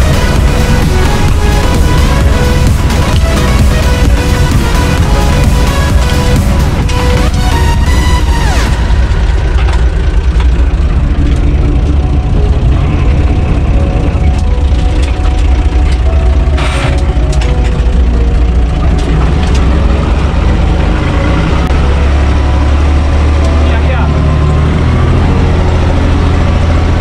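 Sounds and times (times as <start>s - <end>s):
tractor diesel engine running: 0.0s - 27.0s.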